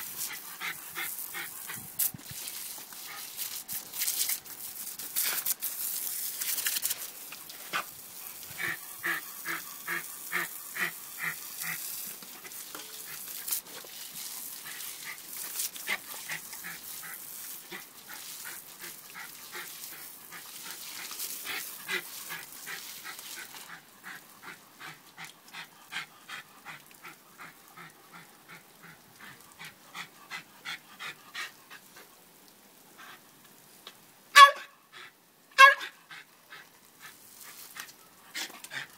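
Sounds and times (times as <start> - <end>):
garden hose spray hissing: 0.0 - 38.9
dog yipping and whining: 34.4 - 34.7, 35.6 - 35.9.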